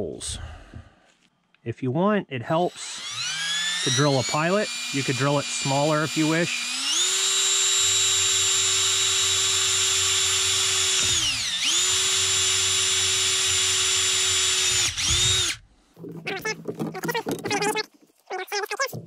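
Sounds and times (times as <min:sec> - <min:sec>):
cordless drill whining: 0:02.7 - 0:16.5.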